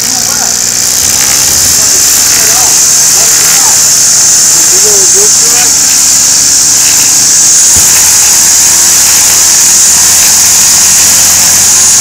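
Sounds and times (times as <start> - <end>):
string trimmer high-pitched whir: 0.0 - 12.0.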